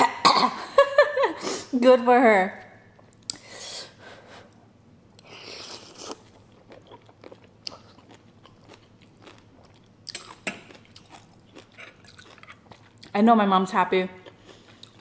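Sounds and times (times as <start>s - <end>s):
wet chewing: 5.2s - 13.2s.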